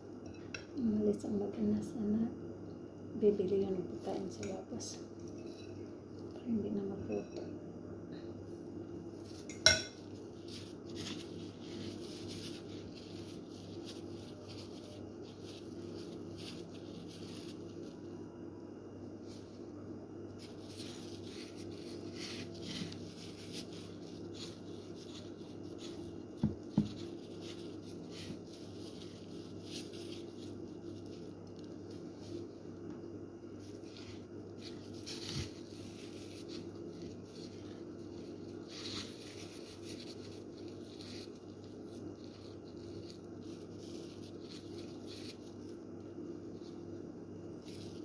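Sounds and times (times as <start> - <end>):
steady low hum: 0.0 - 48.0
gloved hands rustling: 9.1 - 18.2, 20.4 - 32.8, 33.5 - 46.8.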